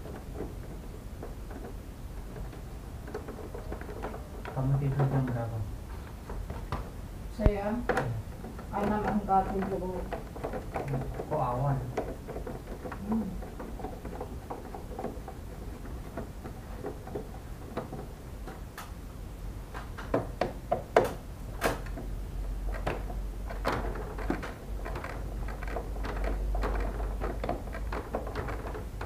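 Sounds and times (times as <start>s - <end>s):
sharp clicks and knocks: 0.0s - 19.0s, 19.7s - 29.0s.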